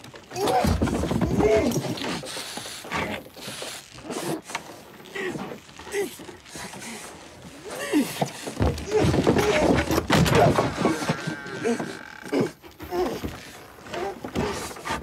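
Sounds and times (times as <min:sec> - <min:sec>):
man groaning and gasping: 0:07.6 - 0:13.2.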